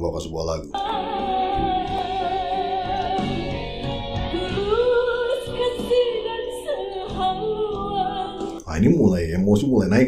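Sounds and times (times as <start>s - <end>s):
instrumental accompaniment: 0.6s - 8.8s
woman singing with vibrato: 0.8s - 8.6s.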